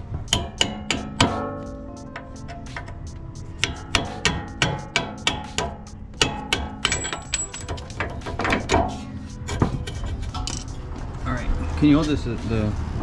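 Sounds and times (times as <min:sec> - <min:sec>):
hammer striking steel punch: 0:00.3 - 0:03.0, 0:03.6 - 0:09.0.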